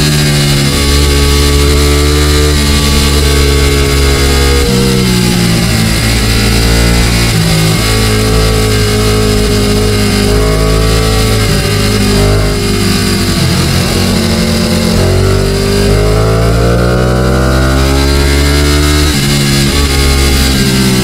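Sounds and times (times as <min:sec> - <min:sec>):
motorcycle engine accelerating: 0:00.0 - 0:21.0.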